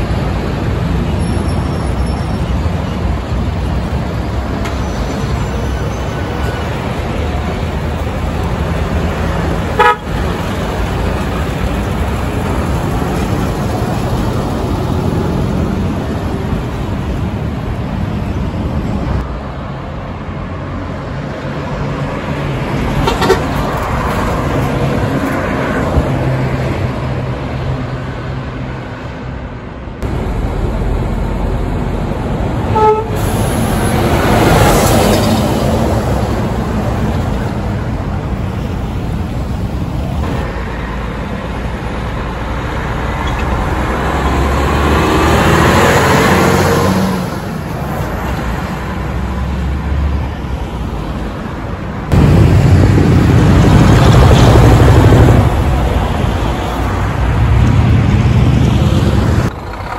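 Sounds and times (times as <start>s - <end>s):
truck diesel engines passing: 0.0s - 59.9s
truck horn toots: 9.7s - 10.2s, 32.7s - 33.3s.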